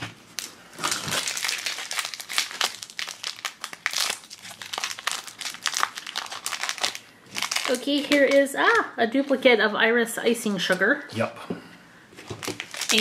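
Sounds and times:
plastic wrapper crackling: 0.3s - 9.4s, 12.2s - 13.0s.

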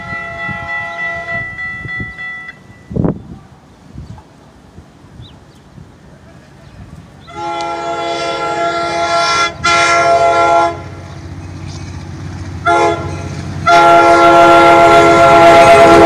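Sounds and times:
locomotive air horn blasts: 0.0s - 2.5s, 7.3s - 11.0s, 12.6s - 16.0s
train rumbling: 0.0s - 16.0s.

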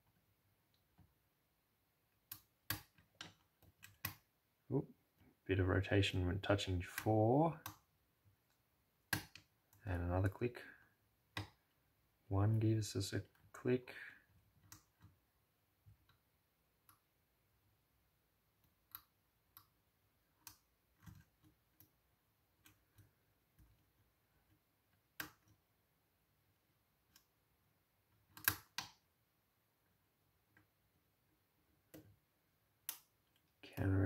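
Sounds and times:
lock pick clicking on pins: 2.2s - 4.3s, 28.3s - 29.0s.

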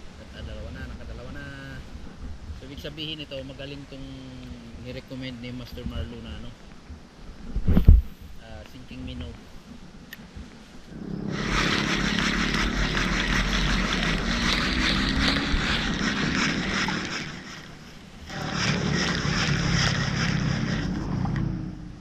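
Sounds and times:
spinning reel gears whirring: 11.0s - 21.8s.

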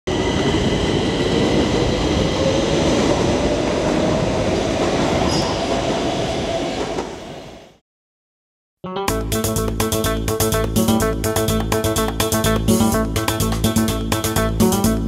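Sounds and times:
train wheels rumbling on rails: 0.1s - 7.8s.

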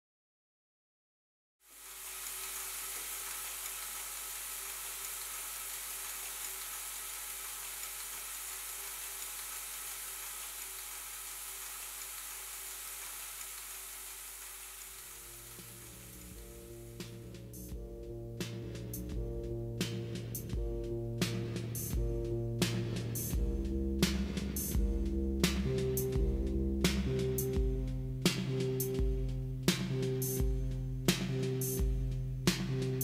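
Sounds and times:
crackling hiss: 1.7s - 17.8s
low hum: 14.9s - 28.3s
low musical tones: 15.0s - 33.0s.

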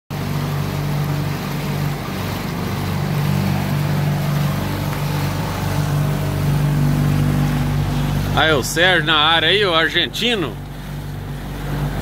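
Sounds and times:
outboard motor running: 0.1s - 12.0s
water rushing: 0.1s - 12.0s
wind: 0.1s - 12.0s.

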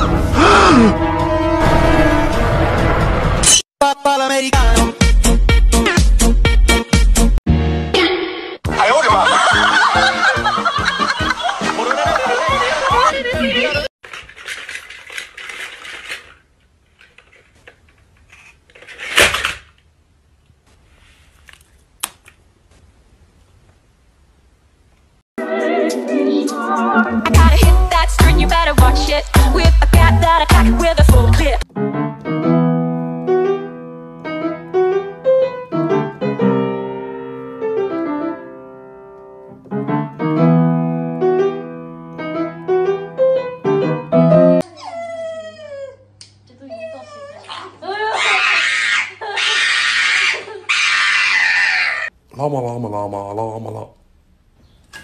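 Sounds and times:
toy clattering on wooden floor: 14.0s - 19.6s
piano music: 25.4s - 44.6s.

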